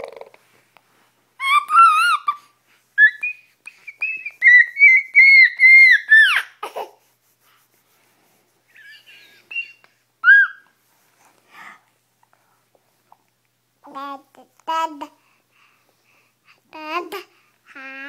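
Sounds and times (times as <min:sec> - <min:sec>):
baby squealing: 0:01.4 - 0:03.3, 0:04.0 - 0:06.8, 0:10.2 - 0:10.6.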